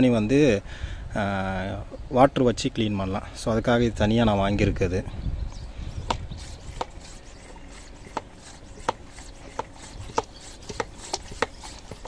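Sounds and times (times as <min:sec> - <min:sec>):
hand pump sprayer being pumped: 0:06.0 - 0:12.0.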